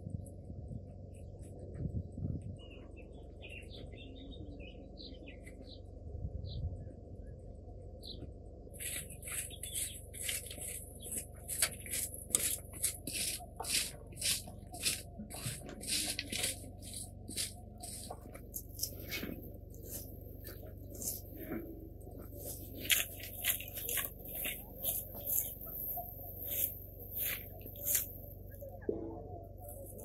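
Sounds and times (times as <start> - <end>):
birds chirping: 1.0 - 30.0
broom sweeping dirt floor: 8.7 - 28.8, 29.5 - 30.0.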